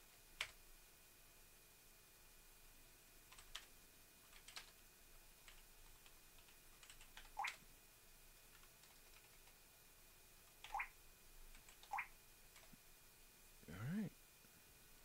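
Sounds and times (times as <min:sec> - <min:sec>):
computer keyboard typing: 0:00.4 - 0:00.6, 0:03.3 - 0:03.7, 0:04.3 - 0:04.8, 0:05.4 - 0:07.6, 0:08.5 - 0:09.6, 0:11.5 - 0:12.7.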